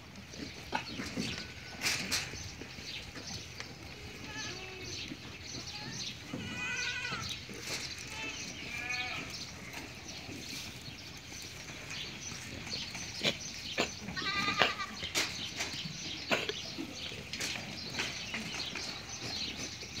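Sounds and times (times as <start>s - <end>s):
goats bleating: 4.0s - 9.6s, 13.1s - 15.2s.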